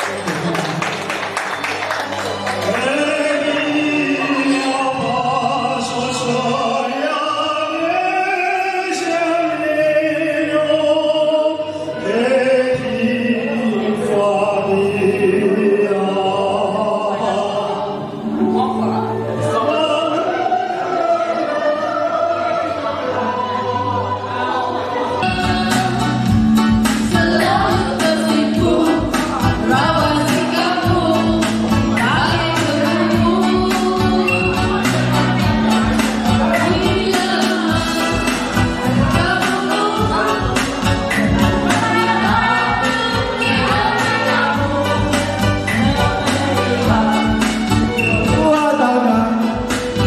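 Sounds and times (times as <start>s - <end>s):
voices singing held notes: 2.6s - 50.0s
low musical accompaniment: 12.0s - 50.0s.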